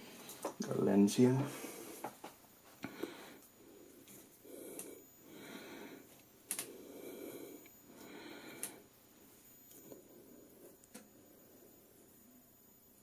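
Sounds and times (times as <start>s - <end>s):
person breathing heavily: 2.8s - 8.9s.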